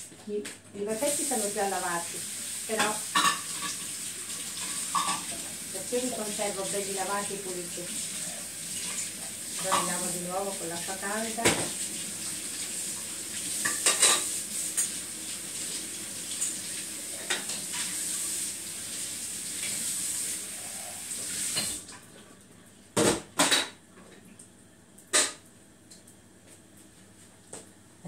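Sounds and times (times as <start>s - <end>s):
water running from a tap: 0.8s - 22.5s
kitchenware knocking on counter: 11.4s - 11.8s.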